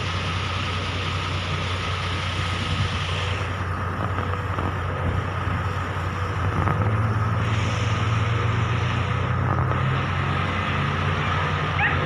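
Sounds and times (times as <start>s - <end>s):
truck engine drone: 0.0s - 12.0s
wind and road noise: 0.0s - 12.0s.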